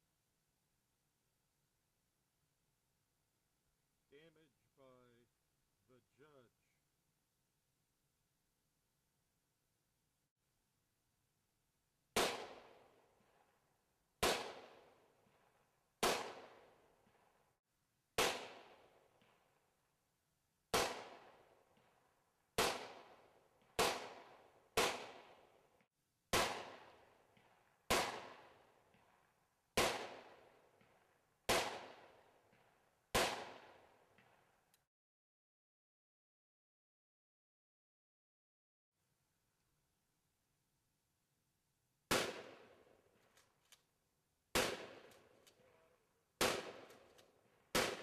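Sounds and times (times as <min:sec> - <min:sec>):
gunshots: 0:12.2 - 0:12.9, 0:14.2 - 0:14.9, 0:16.0 - 0:16.7, 0:18.2 - 0:19.4, 0:20.7 - 0:21.4, 0:22.6 - 0:25.4, 0:26.3 - 0:29.1, 0:29.8 - 0:34.4, 0:42.1 - 0:42.8, 0:44.5 - 0:45.3, 0:46.4 - 0:48.0.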